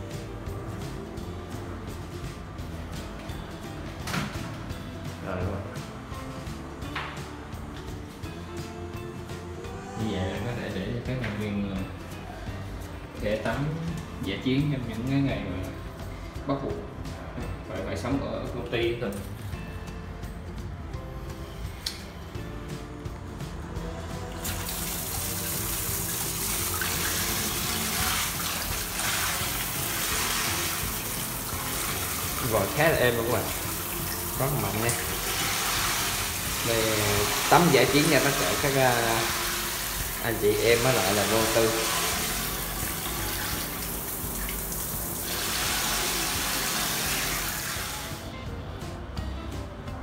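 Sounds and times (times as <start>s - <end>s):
background music: 0.0s - 50.0s
shower head spraying water: 24.3s - 48.3s.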